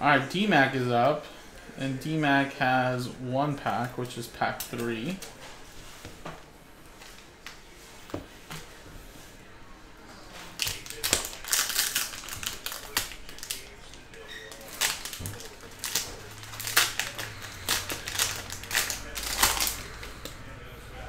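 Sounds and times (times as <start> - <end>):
foil wrapper crinkling and tearing: 10.5 - 20.4.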